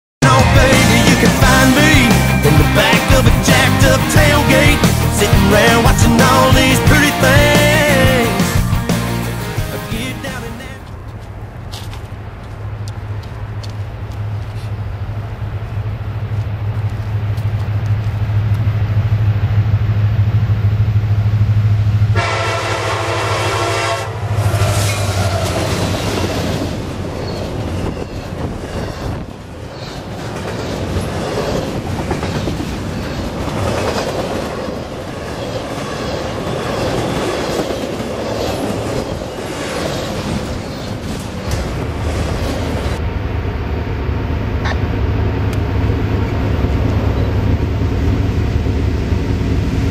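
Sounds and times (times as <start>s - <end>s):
diesel locomotive drone: 0.2s - 49.9s
train wheels rumbling and clicking: 0.6s - 22.1s, 24.3s - 43.0s, 44.0s - 49.9s
train horn: 22.1s - 25.7s.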